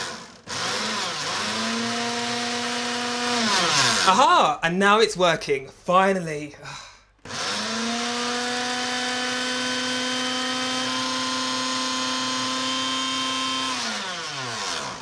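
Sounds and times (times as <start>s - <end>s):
food processor motor blending: 0.0s - 4.2s, 7.2s - 15.0s.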